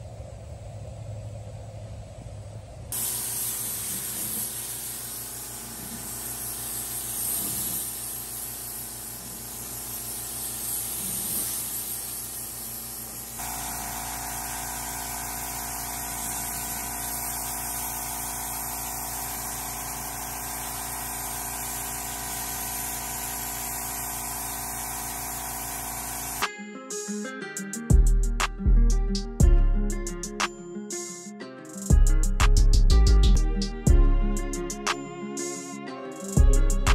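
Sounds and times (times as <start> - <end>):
steady mechanical hum: 0.0 - 26.4
spray gun hissing: 2.9 - 26.4.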